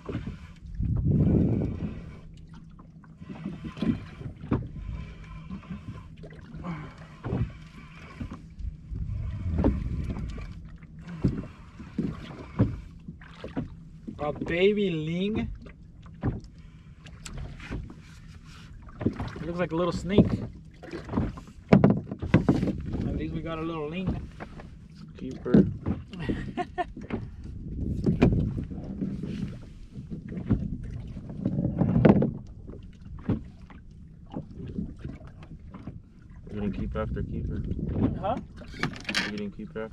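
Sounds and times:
steady low hum: 0:00.0 - 0:20.8
knocks and clunks on boat: 0:00.0 - 0:39.9
water and wind rumble: 0:00.0 - 0:39.9.

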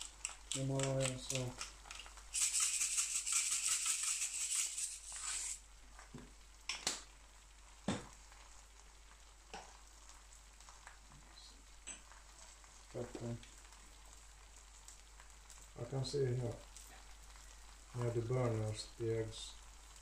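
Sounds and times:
sharp clicks and pops: 0:00.0 - 0:05.0
salt grinder rattling and crunching: 0:00.0 - 0:05.6
eggs sizzling on a griddle: 0:00.0 - 0:20.0.

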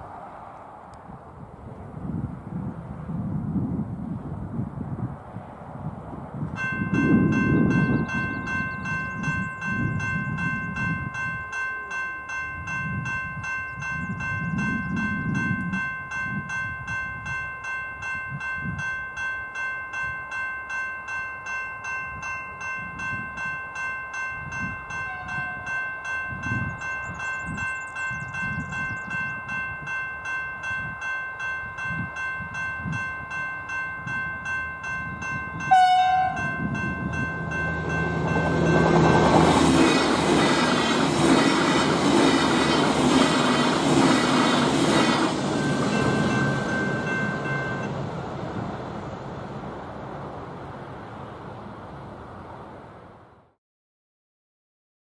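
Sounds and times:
level-crossing bell ringing: 0:06.6 - 0:40.0, 0:45.4 - 0:48.1
train horn blast: 0:24.9 - 0:25.8, 0:35.6 - 0:36.7.

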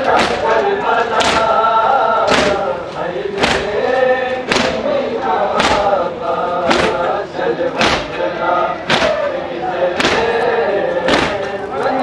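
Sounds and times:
men chanting in chorus: 0:00.0 - 0:12.0
hands slapping bare chests: 0:01.2 - 0:01.5, 0:03.4 - 0:03.7, 0:04.5 - 0:04.8, 0:07.8 - 0:08.1, 0:08.9 - 0:09.2, 0:10.0 - 0:10.3.

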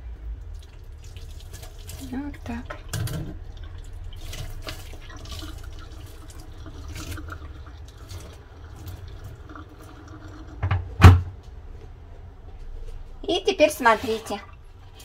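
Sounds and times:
small drips and splashes: 0:00.4 - 0:10.7
water trickling in sink: 0:00.4 - 0:11.0.

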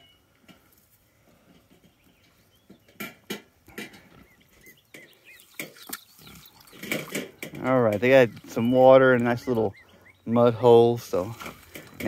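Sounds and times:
wet mud slaps and squelches: 0:05.4 - 0:07.5.

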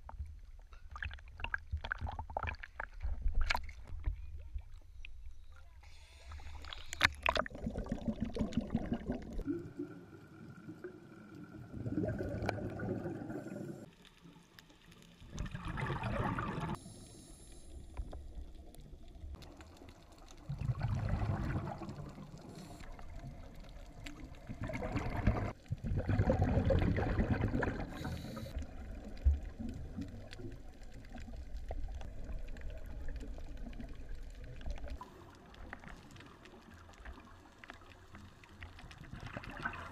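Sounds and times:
bubbly exhaled air underwater: 0:06.5 - 0:13.9, 0:15.2 - 0:16.8, 0:20.3 - 0:37.3, 0:38.8 - 0:39.9.

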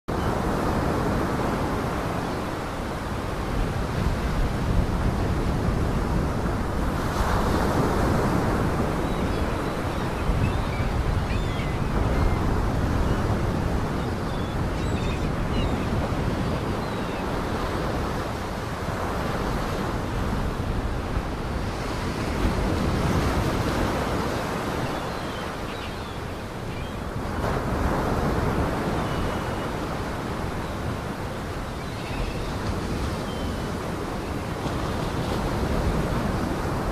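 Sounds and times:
waves washing on shore: 0:00.1 - 0:36.9
wind: 0:00.1 - 0:36.9.

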